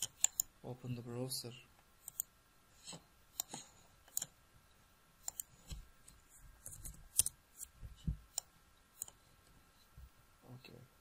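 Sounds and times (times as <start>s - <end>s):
mouse clicks and keystrokes: 0.0s - 0.5s, 2.0s - 2.3s, 3.3s - 4.3s, 5.2s - 5.8s, 8.3s - 9.2s.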